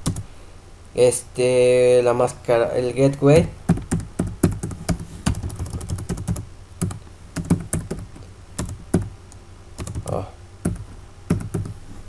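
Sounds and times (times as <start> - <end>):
computer keyboard typing: 3.7 - 9.1, 9.8 - 11.8.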